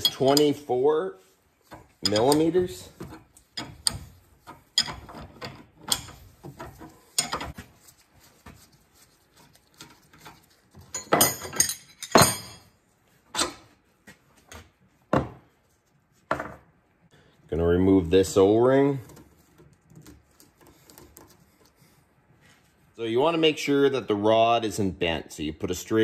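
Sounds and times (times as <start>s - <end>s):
wrench clinking on metal: 0.0s - 0.6s, 2.0s - 2.8s, 4.7s - 6.2s, 10.9s - 12.7s.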